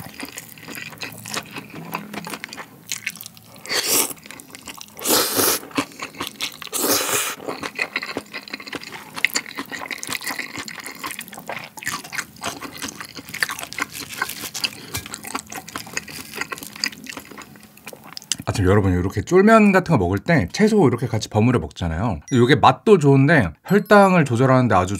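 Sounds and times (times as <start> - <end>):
person slurping noodles: 3.0 - 4.2, 5.0 - 6.0, 6.7 - 7.6.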